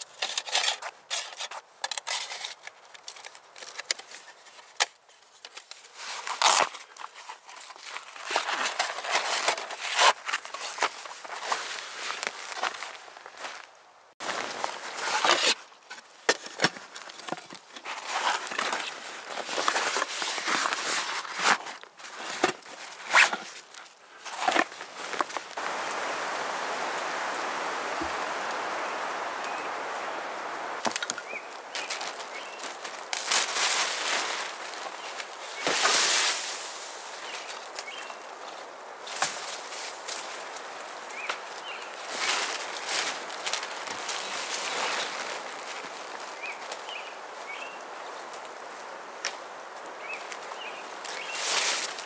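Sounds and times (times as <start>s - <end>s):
steady hiss: 24.0s - 52.0s.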